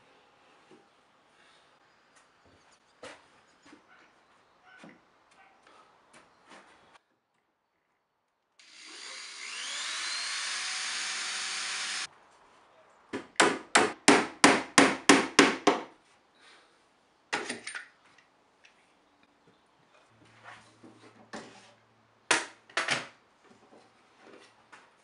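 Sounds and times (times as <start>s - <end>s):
cordless drill into wood: 8.6s - 12.1s
hammer striking nail: 13.4s - 15.9s.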